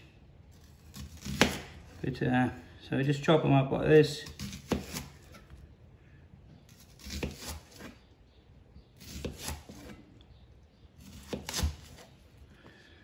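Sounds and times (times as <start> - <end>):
knife slicing onion: 0.6 - 2.0, 4.1 - 5.5, 6.7 - 8.0, 9.0 - 10.0, 11.0 - 12.1.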